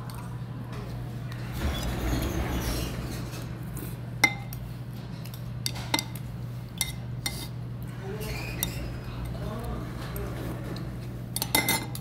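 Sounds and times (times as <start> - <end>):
metal spoon clinking on bowl: 11.4 - 12.0.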